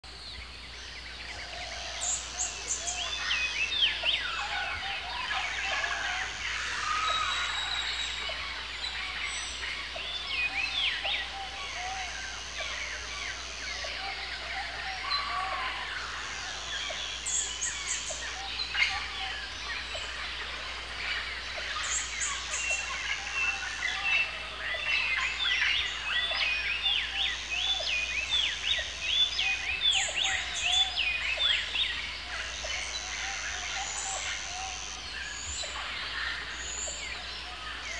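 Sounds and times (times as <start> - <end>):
birds chirping and chattering: 0.4 - 37.9.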